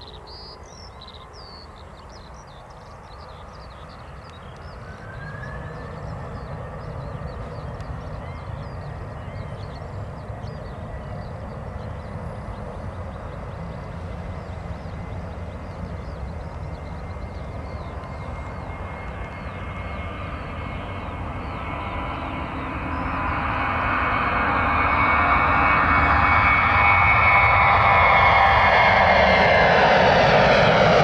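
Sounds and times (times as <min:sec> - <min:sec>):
small birds chirping: 0:00.0 - 0:23.4
distant airliner engines: 0:00.0 - 0:31.0.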